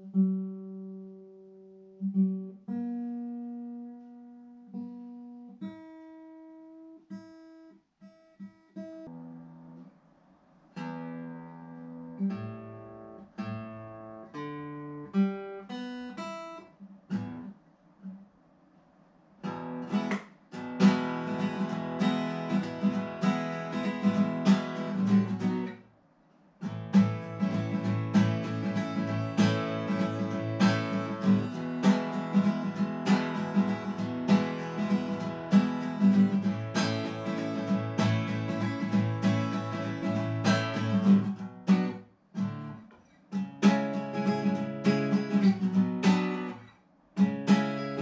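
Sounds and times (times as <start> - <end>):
acoustic guitar plucked notes: 0.0 - 9.9, 10.8 - 17.5, 19.4 - 25.9, 26.6 - 48.0
acoustic guitar strummed chords: 10.8 - 17.5, 19.4 - 26.0, 26.6 - 48.0.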